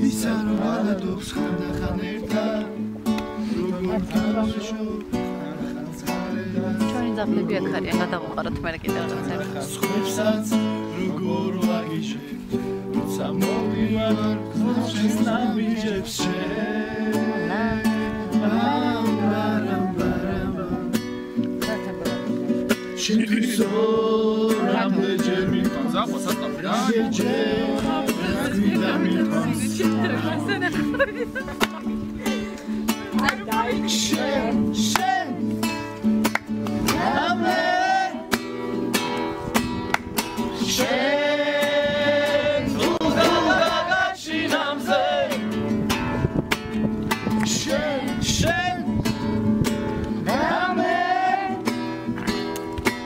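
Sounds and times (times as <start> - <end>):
men singing together: 0.0 - 8.2, 8.9 - 21.1, 23.0 - 35.8, 36.8 - 38.5, 40.4 - 45.7, 47.4 - 49.0, 50.2 - 51.9
acoustic guitar strumming: 0.0 - 53.0
person singing: 13.3 - 21.0, 23.0 - 25.8
hand claps: 31.6 - 31.8, 33.2 - 33.4, 36.2 - 36.8, 39.1 - 40.3, 47.3 - 47.6, 52.1 - 53.0.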